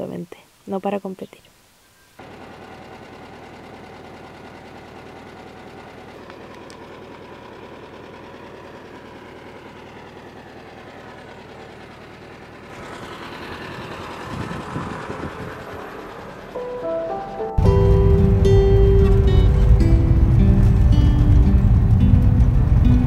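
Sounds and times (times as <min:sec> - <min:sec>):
van engine idling: 0:02.2 - 0:23.0
low thumps: 0:17.5 - 0:23.0.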